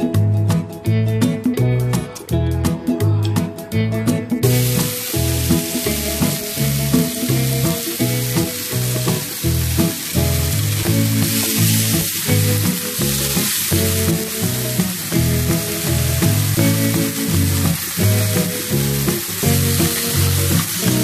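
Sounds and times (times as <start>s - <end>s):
background music with a beat: 0.0s - 21.0s
steak sizzling in a pan: 4.4s - 21.0s.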